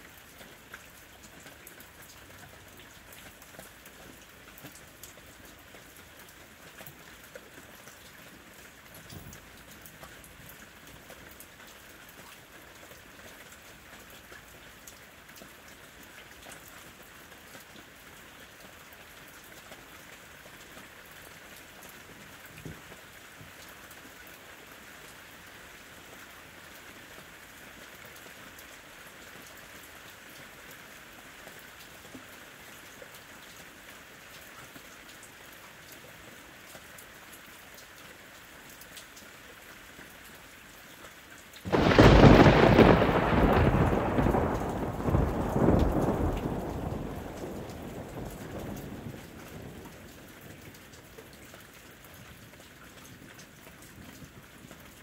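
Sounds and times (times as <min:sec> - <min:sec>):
steady rain falling: 0:00.0 - 0:55.0
thunderclap rumbling: 0:41.7 - 0:49.8.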